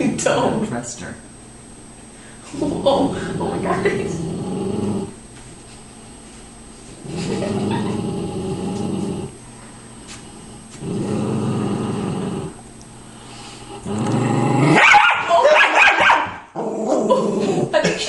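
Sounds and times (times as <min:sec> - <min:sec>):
dog growling and snarling: 0:02.5 - 0:05.2, 0:07.0 - 0:09.4, 0:10.7 - 0:12.6, 0:13.6 - 0:14.8, 0:16.5 - 0:17.9.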